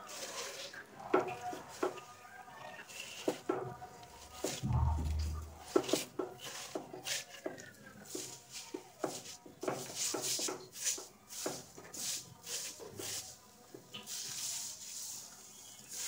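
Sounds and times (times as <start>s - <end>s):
spatula scraping noodles in a wok: 6.4s - 13.4s.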